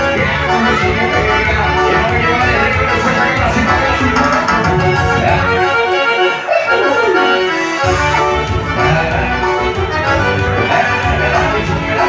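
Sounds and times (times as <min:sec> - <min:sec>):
man singing into microphone: 0:00.0 - 0:06.2, 0:07.8 - 0:12.0
live band music: 0:00.0 - 0:12.0.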